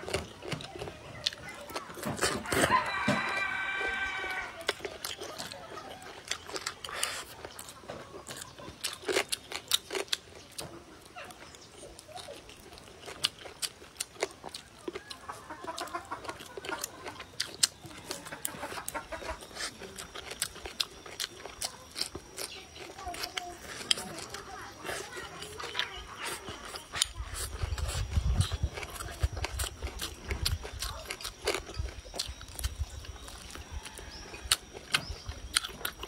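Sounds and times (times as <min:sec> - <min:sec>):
wet chewing: 0:00.0 - 0:36.0
chicken calling: 0:02.4 - 0:08.8, 0:14.5 - 0:20.0.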